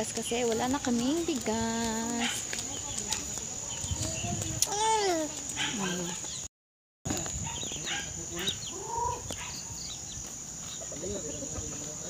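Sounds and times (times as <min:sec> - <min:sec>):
chickens clucking: 0:07.2 - 0:12.0.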